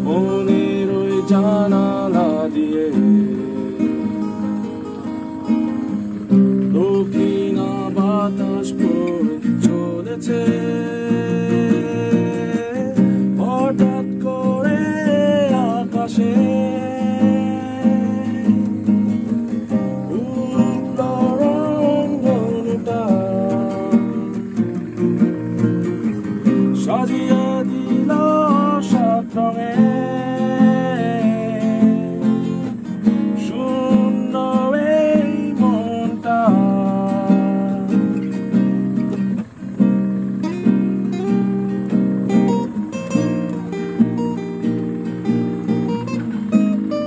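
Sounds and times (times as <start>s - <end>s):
person singing: 0.0s - 19.0s, 20.0s - 25.0s, 26.4s - 32.8s, 33.4s - 38.4s
acoustic guitar strumming: 0.0s - 47.0s.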